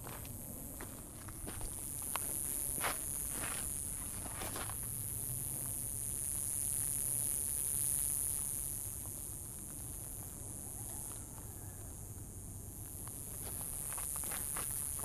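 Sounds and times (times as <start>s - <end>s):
footsteps on rocky trail: 0.0s - 4.8s, 13.2s - 15.0s.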